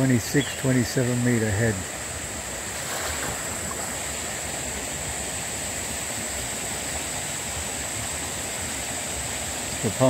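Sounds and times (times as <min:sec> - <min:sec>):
high-pitched hiss: 0:00.0 - 0:10.0
water churning around pump: 0:00.0 - 0:10.0.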